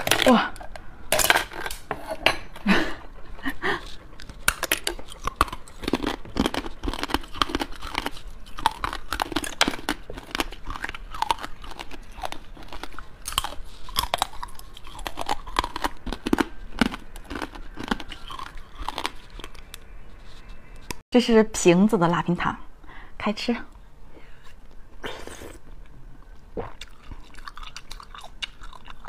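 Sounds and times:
crunching brittle candy: 0:04.2 - 0:19.9, 0:26.8 - 0:29.0.

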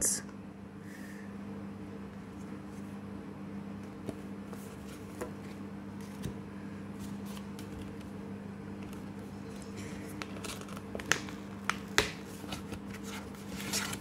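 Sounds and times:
steady low hum: 0:00.0 - 0:14.0
paper card rustles: 0:07.0 - 0:08.1, 0:08.8 - 0:14.0.

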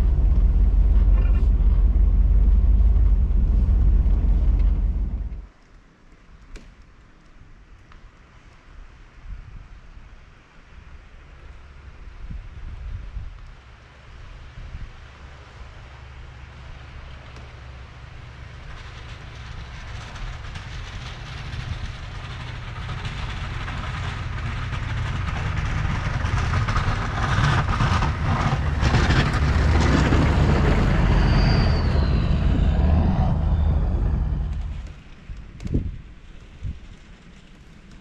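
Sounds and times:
plow blade scraping snow: 0:00.0 - 0:05.4, 0:18.2 - 0:35.1
truck engine under load: 0:00.0 - 0:05.4, 0:17.0 - 0:35.1.

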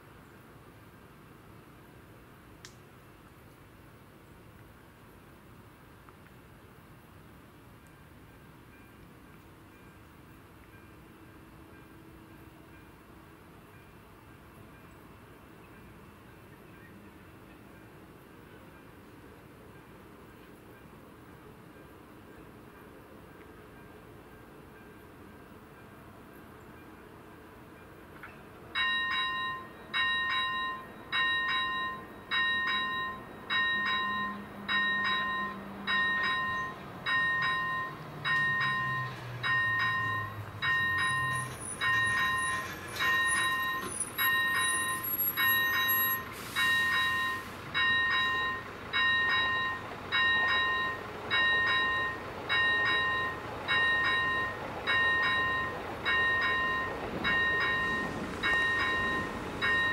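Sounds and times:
level crossing warning bell: 0:27.8 - 0:59.9.

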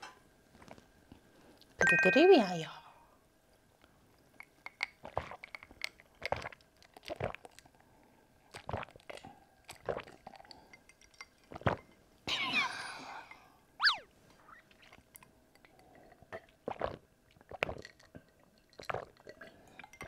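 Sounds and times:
glass clinking: 0:01.8 - 0:02.6
person gulping a drink: 0:04.7 - 0:07.8, 0:08.5 - 0:12.5, 0:13.2 - 0:20.0.

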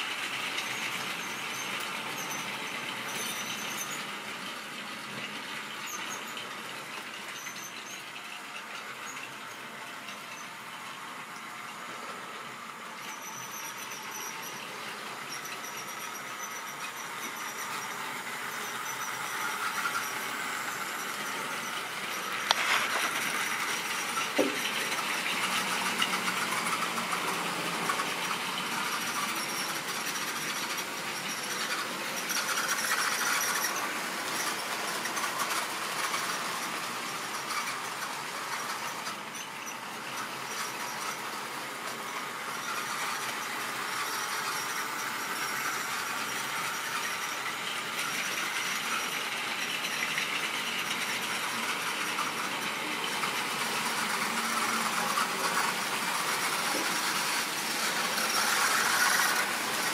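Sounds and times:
model train motor whirring: 0:00.0 - 0:59.9.

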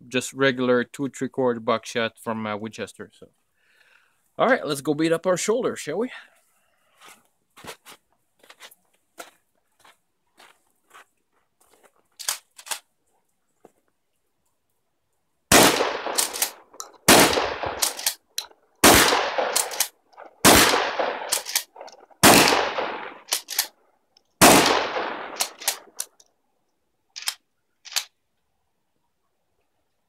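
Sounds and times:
shotgun shots echoing: 0:15.5 - 0:18.2, 0:18.8 - 0:23.6, 0:24.4 - 0:26.0
shotgun pump clacks: 0:16.0 - 0:18.5, 0:19.4 - 0:20.3, 0:21.3 - 0:22.0, 0:23.3 - 0:23.7, 0:25.4 - 0:26.2.

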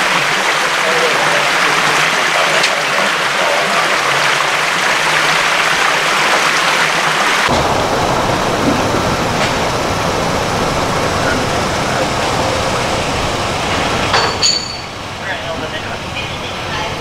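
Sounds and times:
water rushing and hissing: 0:00.0 - 0:17.0
low rumble: 0:07.5 - 0:14.2.

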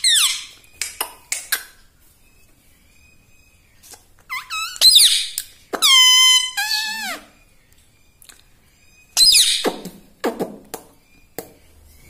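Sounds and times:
parrot calling: 0:00.0 - 0:00.8, 0:03.8 - 0:07.5, 0:08.9 - 0:10.1.

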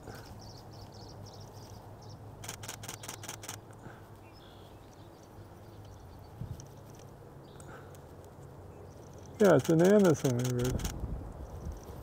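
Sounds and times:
camera shutter burst: 0:02.4 - 0:03.6, 0:09.4 - 0:11.0.

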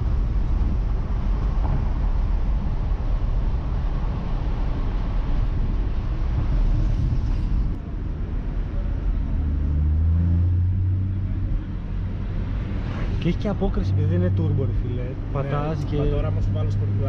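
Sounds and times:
wind rush: 0:00.0 - 0:08.3
road noise: 0:00.0 - 0:17.0.

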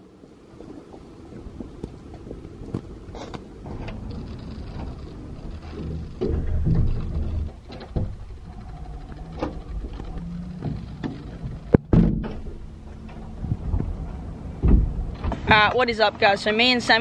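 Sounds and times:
low handling rumble: 0:00.0 - 0:16.7.

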